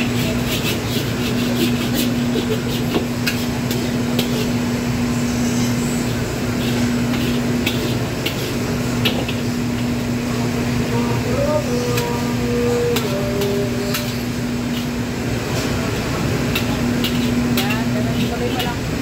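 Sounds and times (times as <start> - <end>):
wok burner and exhaust hood hum: 0.0 - 19.0
metal ladle scraping steel wok: 0.1 - 9.4, 16.5 - 18.8.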